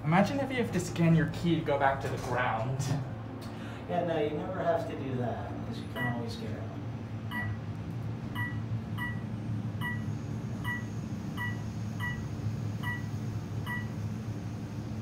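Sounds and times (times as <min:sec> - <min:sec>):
low hum of moving elevator: 0:00.0 - 0:15.0
elevator floor chime beeping: 0:06.0 - 0:06.3, 0:07.3 - 0:07.6, 0:08.3 - 0:14.1.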